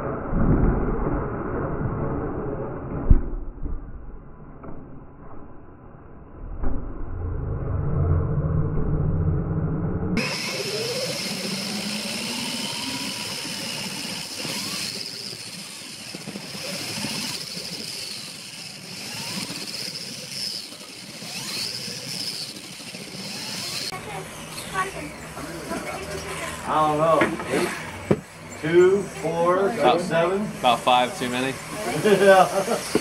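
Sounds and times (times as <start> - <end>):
electric toy car motor whine: 10.2 - 33.0.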